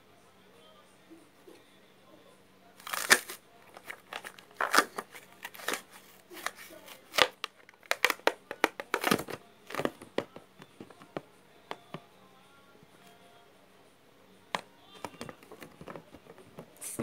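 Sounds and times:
squishy ball clicking and crackling: 2.8s - 10.4s.

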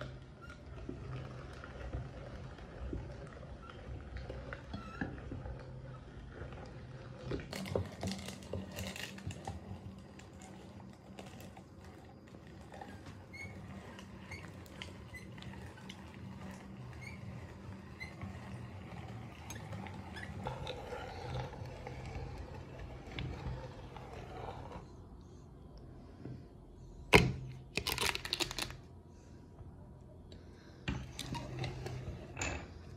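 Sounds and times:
meat grinder squelching and clicking: 0.0s - 23.3s.

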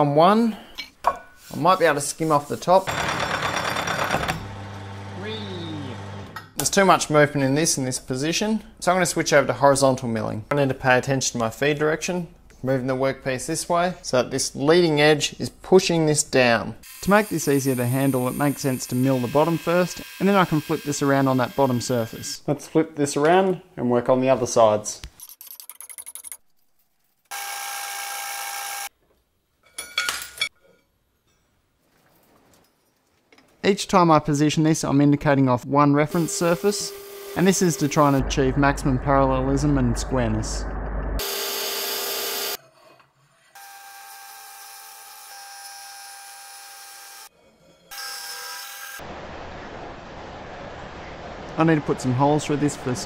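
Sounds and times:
milling cutter whine: 4.0s - 6.5s, 36.1s - 42.6s.

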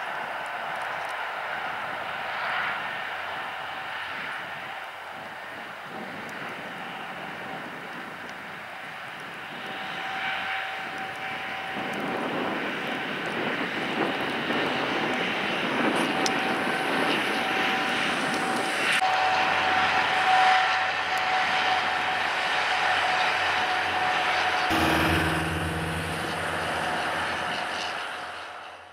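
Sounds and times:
jet engines running: 23.1s - 28.5s.

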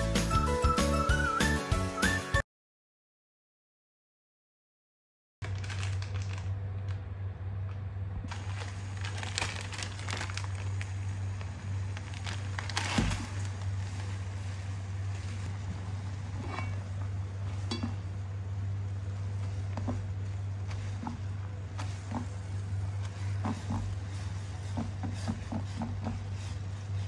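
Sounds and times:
noodle packet crinkling: 5.4s - 7.0s, 8.3s - 15.6s
steady low hum: 5.5s - 27.0s
tongs turning noodles: 18.8s - 27.0s.

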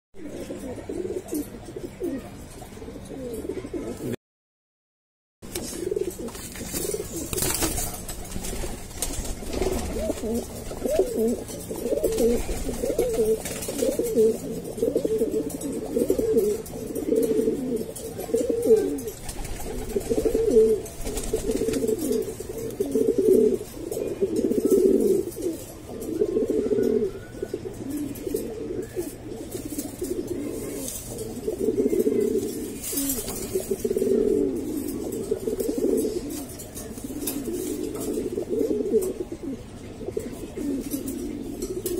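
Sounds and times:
pigeons cooing: 0.2s - 4.2s, 5.5s - 41.9s.

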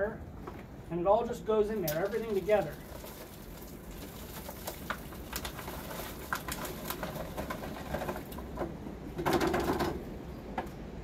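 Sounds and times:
wax pieces dropping into water: 1.9s - 8.5s.

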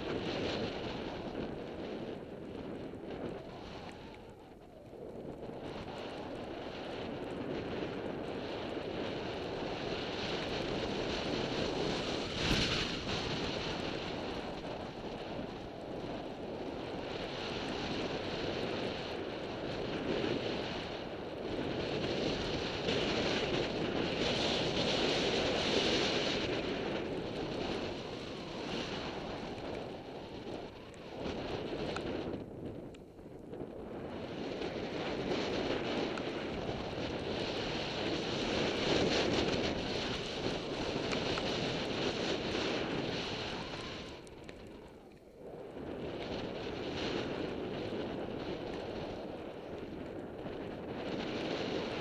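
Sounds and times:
wind buffeting microphone: 0.0s - 52.0s
sliding over snow: 33.6s - 45.0s.

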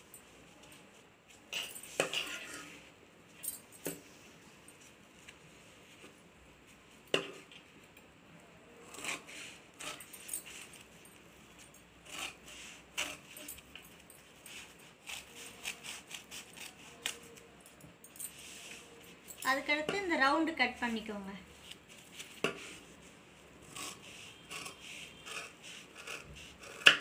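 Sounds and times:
scissors snipping fabric: 8.8s - 10.8s, 13.0s - 13.8s, 14.5s - 17.5s, 23.7s - 27.0s.

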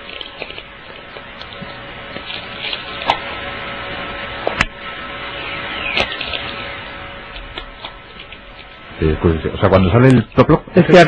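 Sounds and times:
crackling radio hiss: 0.0s - 11.0s
sharp pops: 4.4s - 4.8s.

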